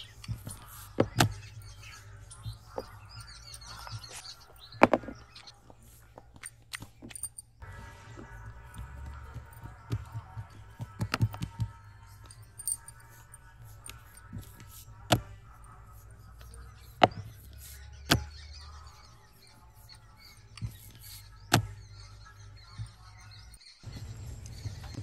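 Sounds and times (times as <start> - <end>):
knocks and clicks handling food: 8.8 - 11.8.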